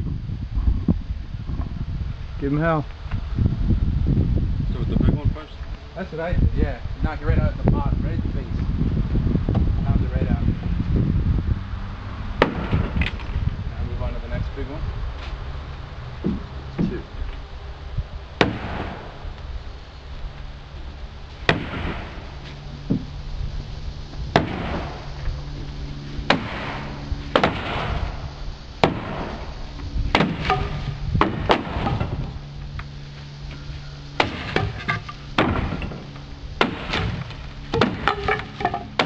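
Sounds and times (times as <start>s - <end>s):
hammer knocking wooden balusters: 34.2s - 36.0s, 36.6s - 39.0s.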